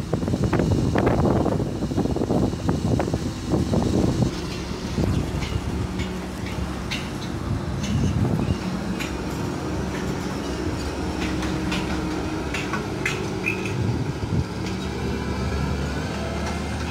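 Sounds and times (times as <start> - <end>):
combine harvester engine: 0.0 - 16.9
rattles and clanks: 3.0 - 14.0.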